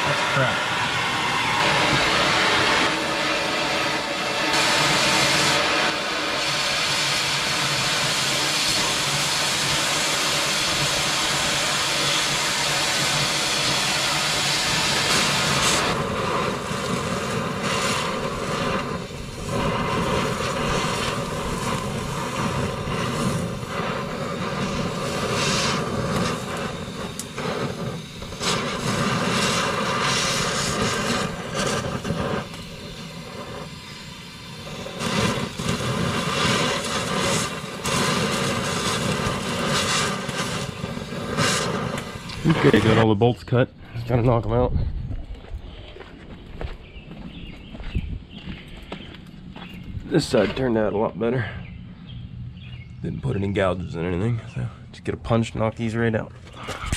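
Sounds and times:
cutting torch hissing: 0.0s - 56.9s.

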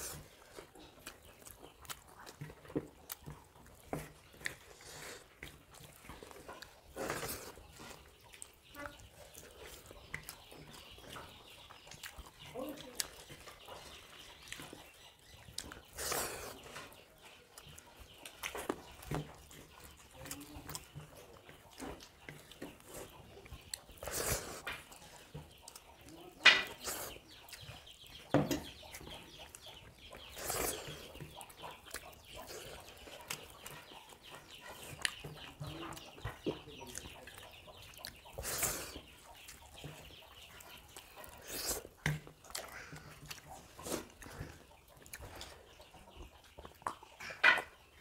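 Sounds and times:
chewing and lip-smacking: 0.0s - 48.0s.

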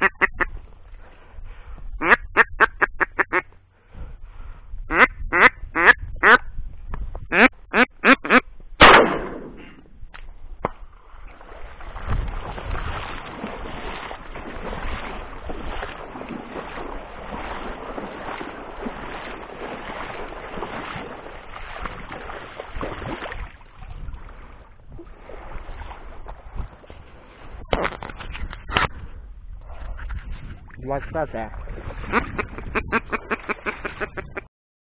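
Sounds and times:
duck quacking: 0.0s - 0.5s, 2.0s - 3.5s, 4.9s - 6.4s, 7.3s - 8.4s, 32.1s - 34.5s
wading through shallow water: 8.8s - 34.5s.

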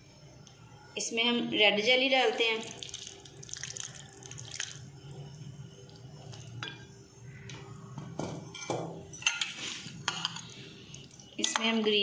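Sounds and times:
glass clinking and scraping: 8.4s - 10.6s.

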